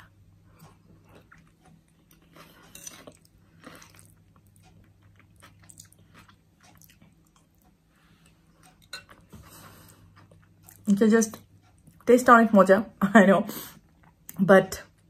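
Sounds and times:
person chewing and biting: 0.6s - 10.8s.

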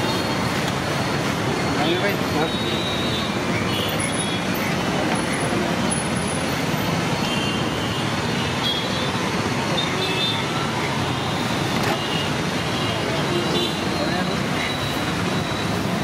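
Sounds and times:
roadside traffic noise: 0.0s - 16.0s
people talking: 1.8s - 2.8s, 12.7s - 14.8s.

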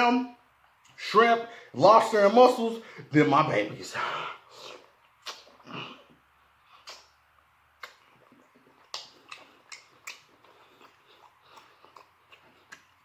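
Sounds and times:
wet chewing mouth smacks: 4.8s - 5.6s, 6.8s - 7.2s, 7.8s - 13.0s.

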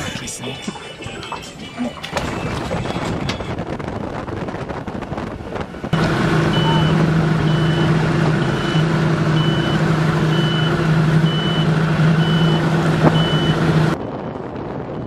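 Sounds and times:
motorboat engine drone: 0.0s - 15.0s
high-pitched electronic beeps: 6.5s - 8.8s.

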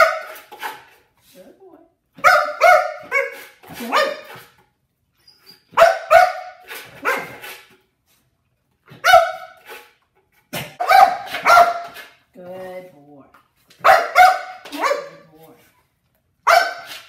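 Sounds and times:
dog barking: 0.0s - 0.4s, 2.2s - 4.5s, 5.7s - 7.5s, 8.9s - 9.6s, 10.7s - 12.1s, 13.8s - 15.2s, 16.4s - 17.0s.

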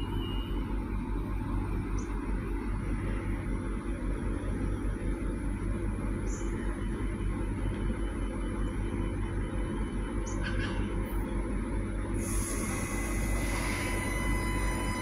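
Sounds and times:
diesel railcar idling hum: 0.0s - 15.0s
steady whining tones: 12.2s - 15.0s.

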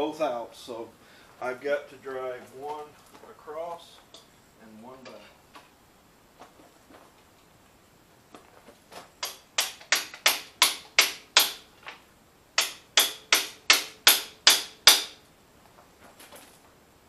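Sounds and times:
hammer striking metal: 9.2s - 11.6s, 12.6s - 15.2s.

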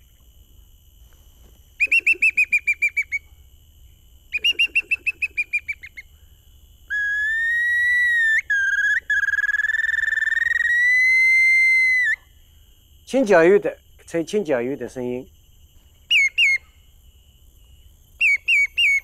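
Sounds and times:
bird whistle trills and whistle: 1.8s - 3.3s, 4.3s - 6.1s, 6.9s - 12.2s, 16.1s - 16.8s, 18.2s - 19.0s.

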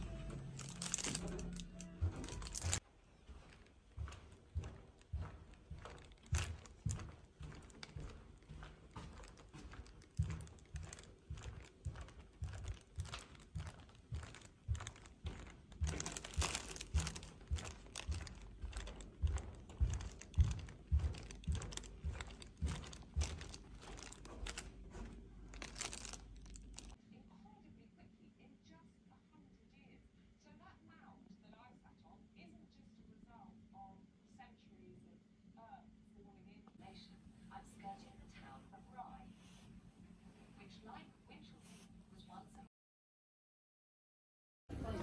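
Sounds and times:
crinkly rustle of carried item: 0.0s - 27.0s
footsteps on carpet: 0.0s - 27.0s.

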